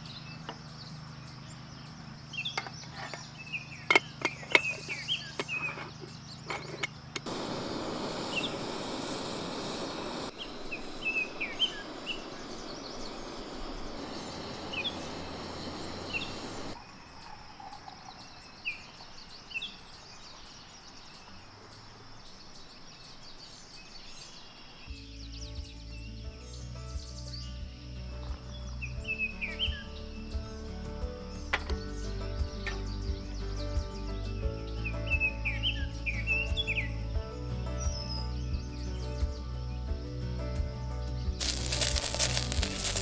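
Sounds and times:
small birds chirping: 0.0s - 43.0s
steady rushing noise: 7.3s - 16.8s.

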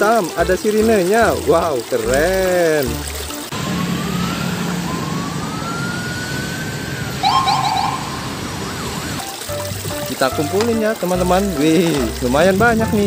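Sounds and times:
passing traffic: 3.1s - 10.0s
police siren wailing: 3.5s - 9.4s
siren chirping yelps: 3.8s - 9.3s.

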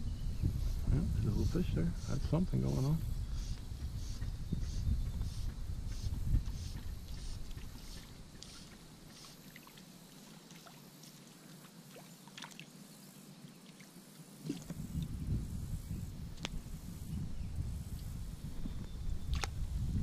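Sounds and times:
water lapping and sloshing: 6.8s - 12.8s, 13.6s - 14.8s
water drips and splashes: 7.1s - 12.8s.

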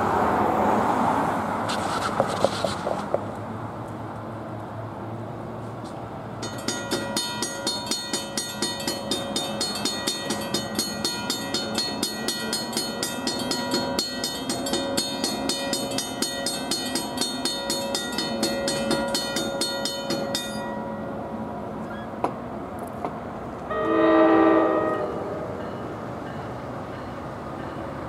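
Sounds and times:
railroad crossing warning bell: 6.4s - 21.5s, 23.7s - 28.0s.

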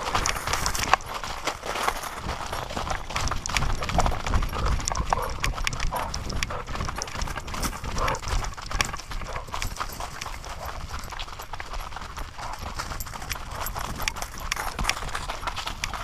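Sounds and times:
dog paws running through dry leaves: 0.0s - 16.0s.

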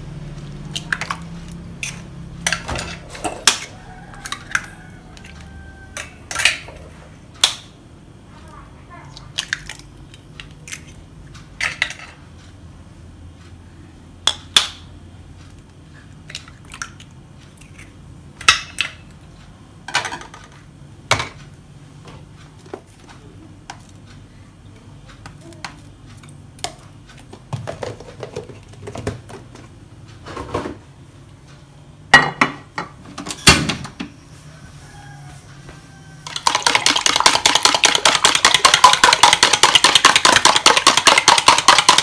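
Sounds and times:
utensils clinking against bowls: 0.7s - 6.8s, 36.2s - 42.0s.

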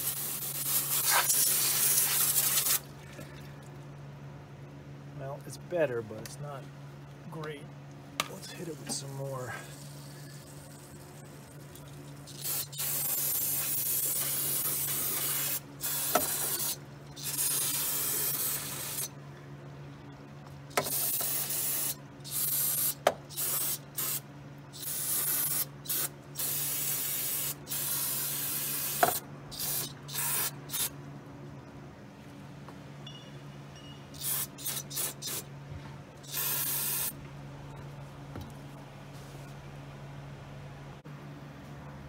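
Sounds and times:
aerosol spray hissing: 0.0s - 2.8s, 12.3s - 19.1s, 24.8s - 30.9s, 34.2s - 35.4s, 36.3s - 37.1s.

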